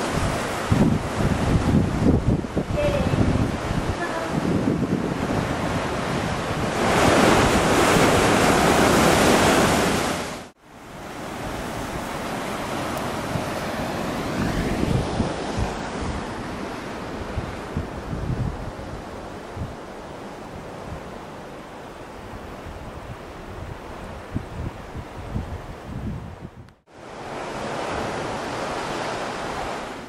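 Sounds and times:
sea surf washing over rocks: 0.0 - 22.9
wind gusting on microphone: 0.0 - 30.0.

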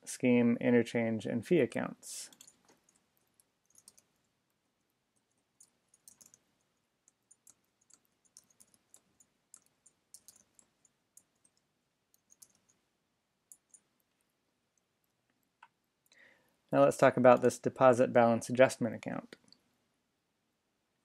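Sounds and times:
keyboard typing: 2.3 - 12.8, 13.4 - 14.2.

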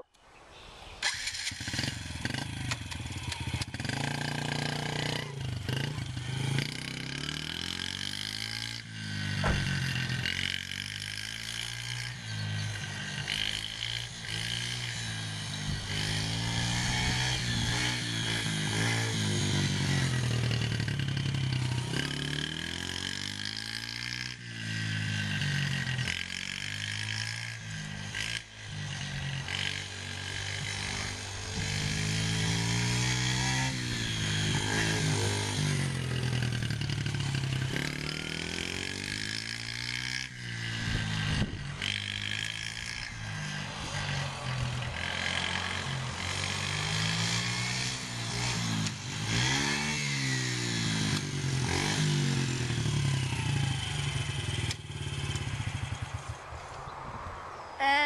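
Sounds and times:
dirt bike engine revving: 1.0 - 56.4
sharp knock: 9.4 - 9.8.

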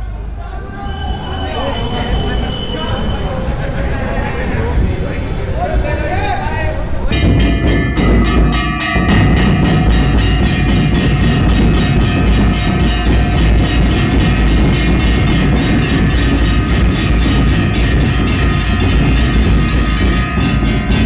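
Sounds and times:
drums beaten fast: 7.1 - 21.0.

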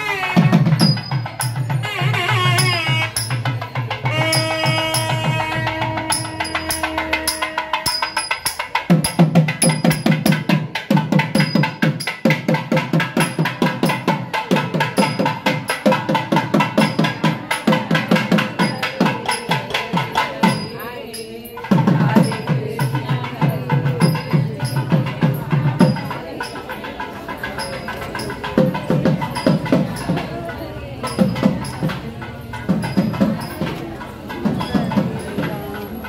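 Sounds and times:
wind instrument melody: 0.0 - 9.9
hand drum beat: 0.0 - 36.0.

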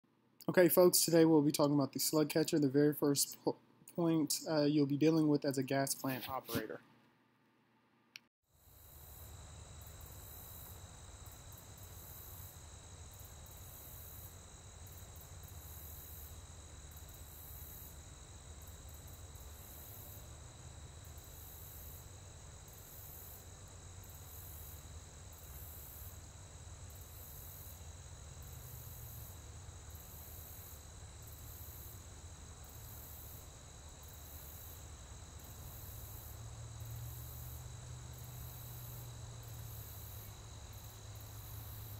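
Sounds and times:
low hum of plant equipment: 0.1 - 41.9
insects chirping: 8.6 - 41.9.

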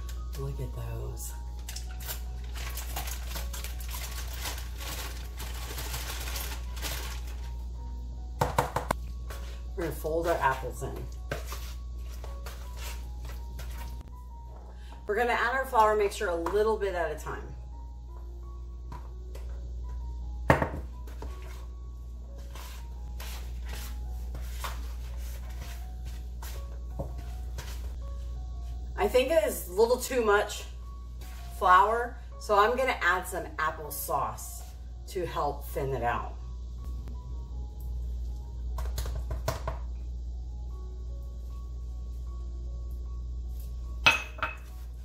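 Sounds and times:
aluminium foil crinkling: 1.4 - 7.7.

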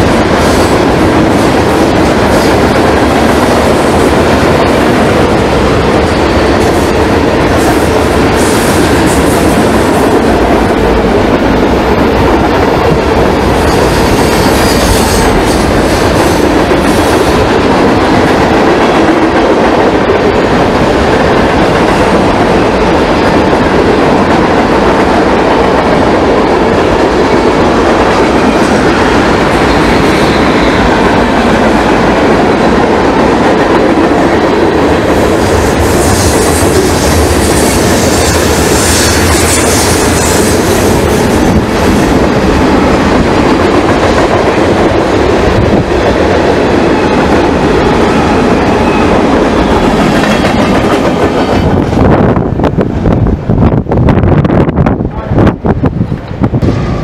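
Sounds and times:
freight train wheels clattering: 0.0 - 53.0.

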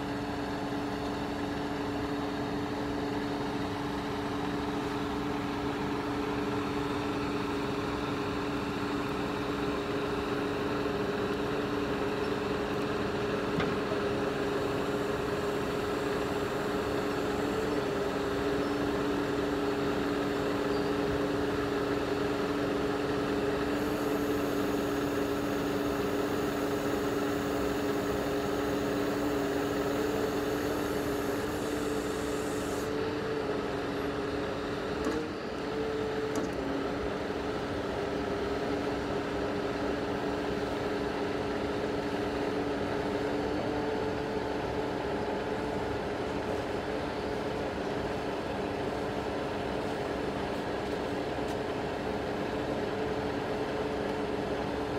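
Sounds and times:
truck diesel engine running: 0.0 - 35.0
hydraulic crane whine: 0.0 - 54.9.

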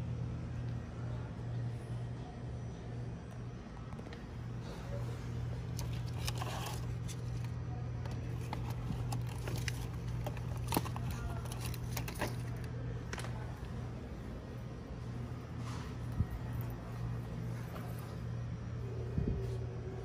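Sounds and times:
steady low hum: 0.0 - 20.0
lanterns clicking and rattling: 5.6 - 13.6.

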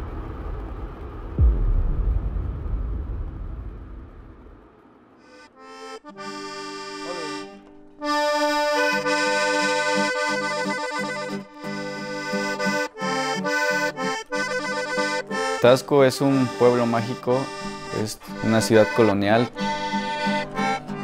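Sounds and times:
piano accordion playing a tune: 5.3 - 21.0.

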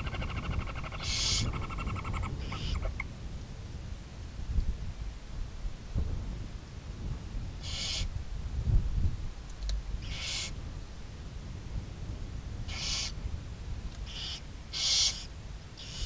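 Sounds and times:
owls screeching: 0.0 - 3.0, 7.6 - 8.1, 10.0 - 10.5, 12.7 - 13.2, 14.1 - 16.0.

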